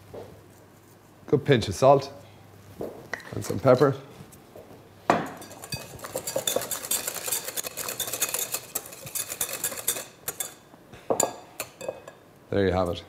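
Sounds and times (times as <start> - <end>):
whisk clinking against glass bowl: 5.3 - 12.2.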